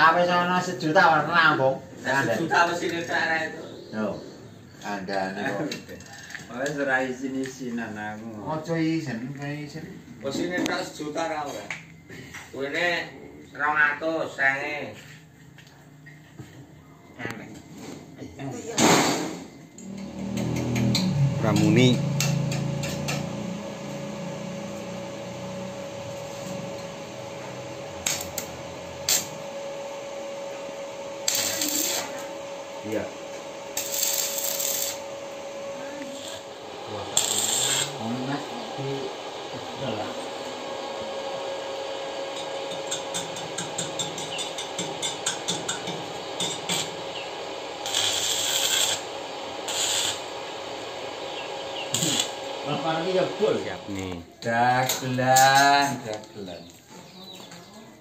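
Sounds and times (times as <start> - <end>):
steady welder hum: 18.6 - 56.8
welding arc crackling: 19.9 - 29.6, 30.8 - 39.5, 42.7 - 54.2.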